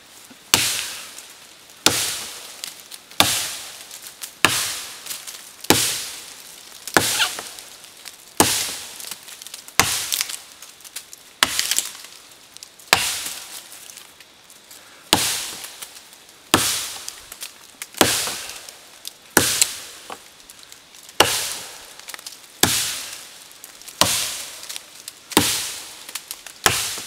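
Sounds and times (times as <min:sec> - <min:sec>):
wood splintering crackle: 0:00.0 - 0:27.0
axe chopping into wood: 0:01.8 - 0:02.2, 0:04.4 - 0:04.8, 0:07.0 - 0:07.5, 0:09.8 - 0:10.2, 0:12.9 - 0:13.3, 0:18.0 - 0:18.4, 0:26.6 - 0:27.0.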